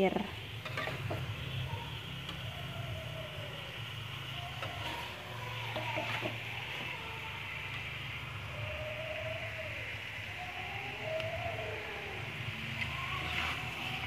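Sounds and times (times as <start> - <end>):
metal spatula scraping a wok: 0.6 - 1.6.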